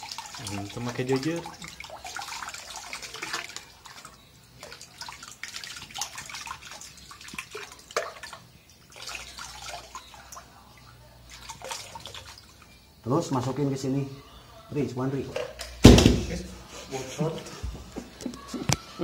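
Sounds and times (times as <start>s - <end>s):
water splashing into basin: 0.0s - 12.8s, 15.3s - 16.4s.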